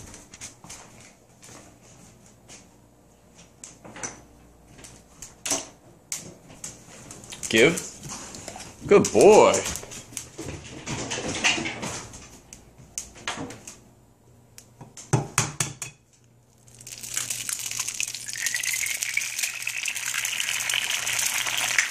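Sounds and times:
egg sizzling in hot oil: 16.5 - 21.9.

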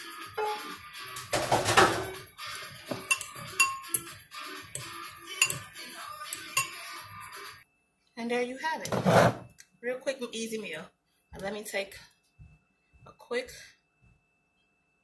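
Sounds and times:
frying pan clattering: 1.3 - 2.2, 2.9 - 4.1
fork scraping ceramic bowl: 2.9 - 4.1, 4.8 - 5.7, 6.3 - 6.8.

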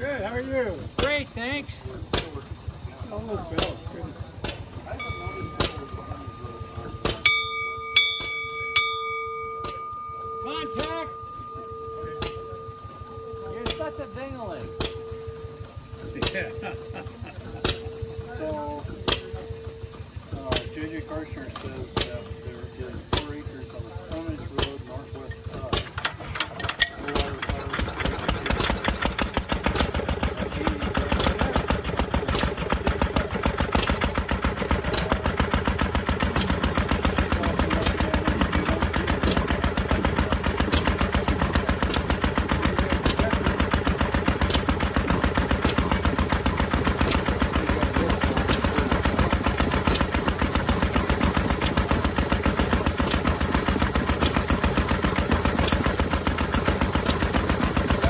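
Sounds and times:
stationary engine running: 0.0 - 58.0
air compressor pumping: 17.3 - 58.0.

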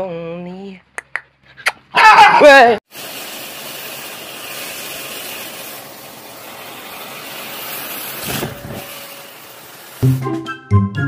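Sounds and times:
hot-air blower hissing: 2.9 - 10.4.

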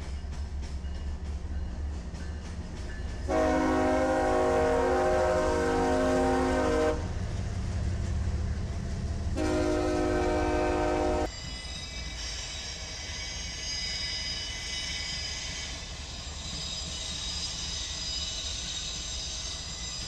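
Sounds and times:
passing train rumble: 0.0 - 20.0
locomotive air horn blasts: 3.3 - 7.2, 9.4 - 11.3.

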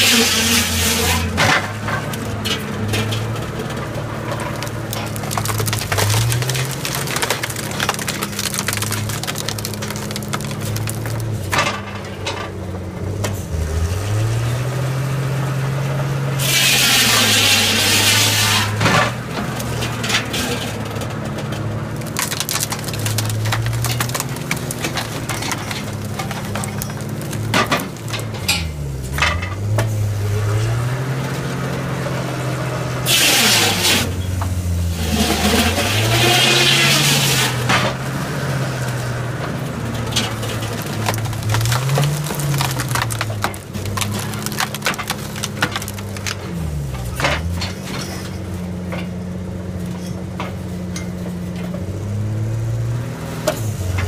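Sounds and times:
wood cracking and clattering: 0.0 - 13.4, 16.4 - 32.3, 33.0 - 51.9.

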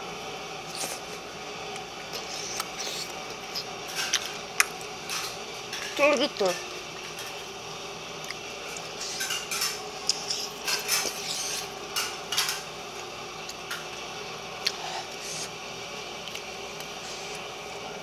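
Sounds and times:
wet chewing sounds: 1.8 - 5.0, 8.2 - 11.7.

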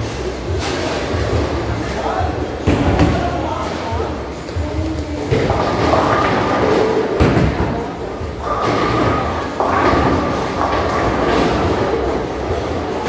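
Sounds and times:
voices: 0.0 - 13.0
bowling ball striking pins: 5.2 - 13.0.

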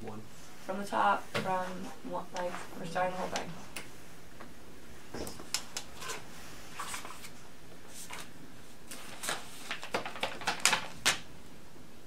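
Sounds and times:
paper rustling: 5.9 - 11.3.

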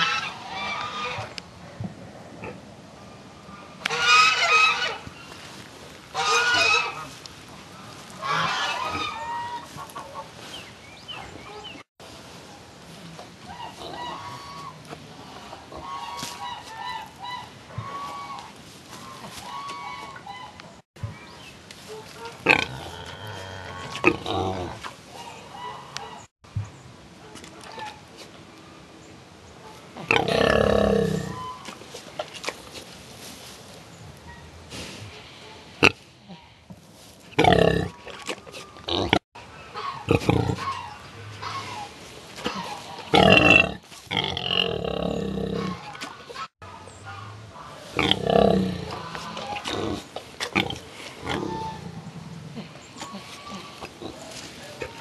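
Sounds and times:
hens clucking: 0.0 - 1.4, 3.8 - 5.1, 6.1 - 10.6, 13.4 - 20.8, 24.8 - 26.3, 37.4 - 44.8, 45.6 - 55.0
pigs grunting: 13.4 - 17.1, 22.2 - 26.2, 30.0 - 32.7, 37.3 - 46.5, 47.1 - 55.0.

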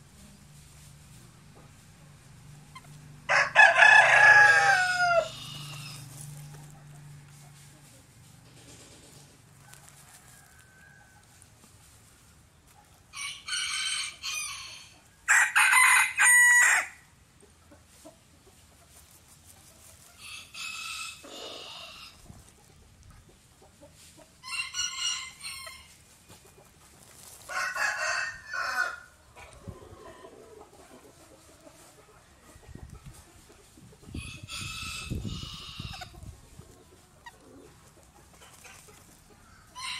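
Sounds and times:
chicken calling: 1.6 - 6.8.

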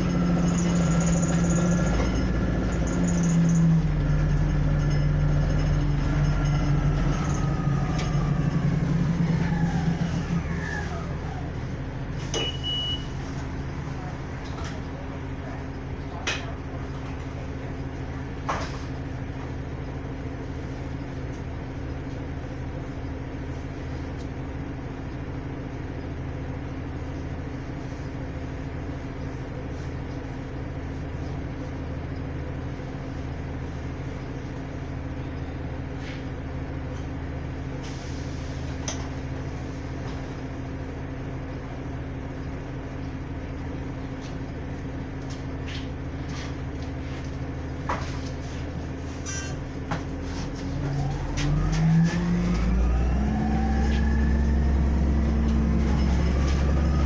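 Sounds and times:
bus engine drone: 0.0 - 57.0
short high beep: 12.3 - 13.2.

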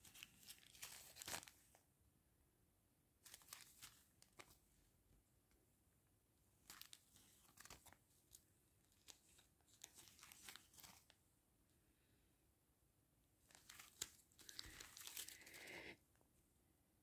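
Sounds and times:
plastic bag crinkling: 6.7 - 11.2, 13.5 - 16.0.

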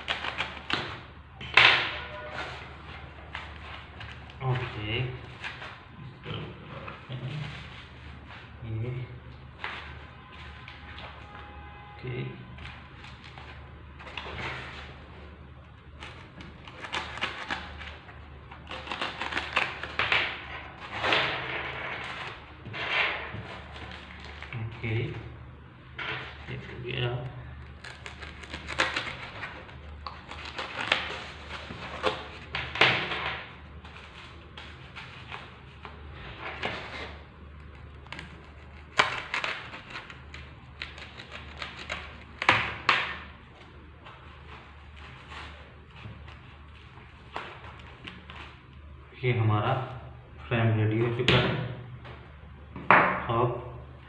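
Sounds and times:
craft knife cutting foam: 37.8 - 42.9.

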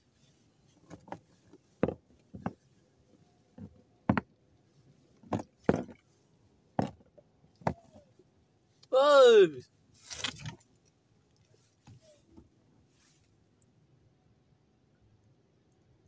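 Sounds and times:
knocks and taps on wooden boat: 1.8 - 2.6, 3.6 - 4.3, 5.2 - 6.0, 6.8 - 7.9.

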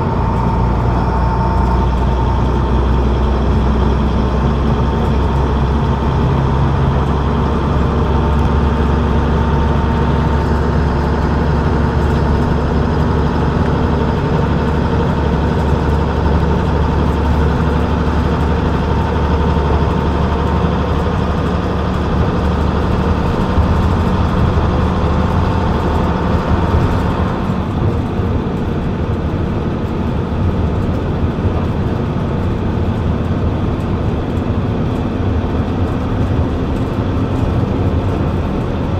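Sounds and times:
bus diesel engine running: 0.0 - 38.9
tyre and road noise: 0.0 - 38.9.

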